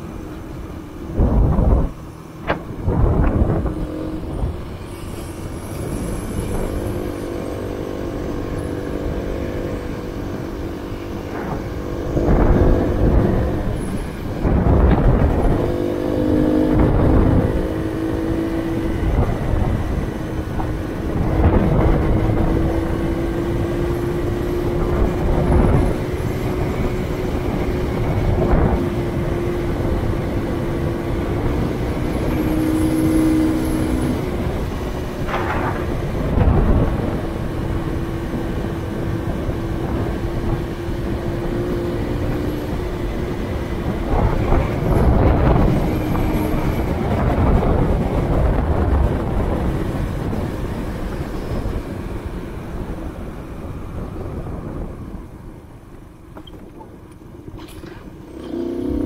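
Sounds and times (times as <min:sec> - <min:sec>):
road noise: 0:00.0 - 0:59.0
wind rushing over microphone: 0:00.0 - 0:59.0
motorcycle engine running: 0:58.3 - 0:59.0.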